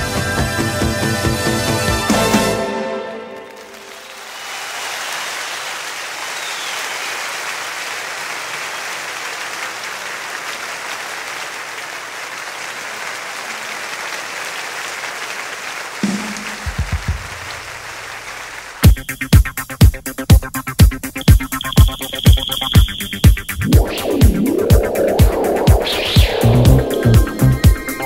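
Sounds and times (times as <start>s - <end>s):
audience applause: 3.2s - 19.0s.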